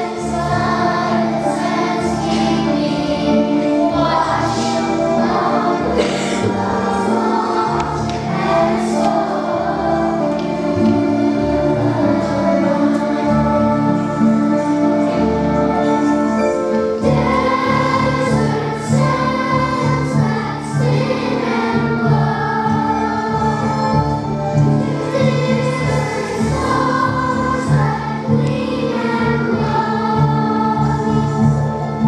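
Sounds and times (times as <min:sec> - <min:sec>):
children's choir singing: 0:00.0 - 0:32.0
instrumental accompaniment: 0:00.0 - 0:32.0.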